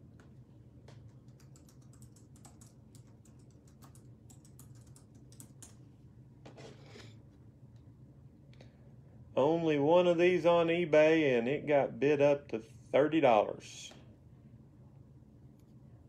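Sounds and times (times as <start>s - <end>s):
keyboard typing clicks: 0.1s - 5.8s.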